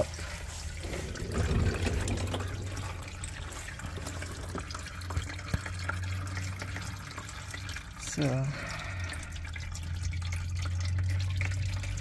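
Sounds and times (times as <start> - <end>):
fluid dripping into drain pan: 0.0 - 12.0
low hum: 0.2 - 6.8.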